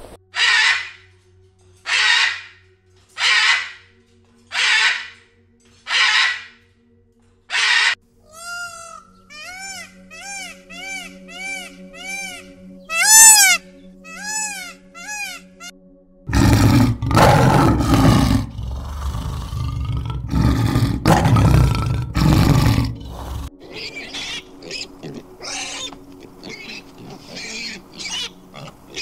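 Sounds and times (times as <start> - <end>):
peacock calling: 3.2 - 3.9, 4.5 - 5.2, 5.9 - 6.6, 7.5 - 15.7, 22.8 - 29.0
lion roaring: 16.3 - 23.6.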